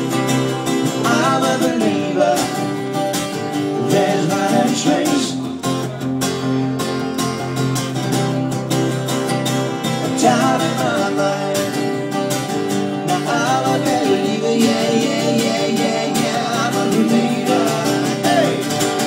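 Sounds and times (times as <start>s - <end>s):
acoustic guitars strummed: 0.0s - 19.0s
man singing into a microphone: 0.8s - 2.8s, 3.7s - 5.6s, 10.0s - 12.2s, 12.9s - 19.0s.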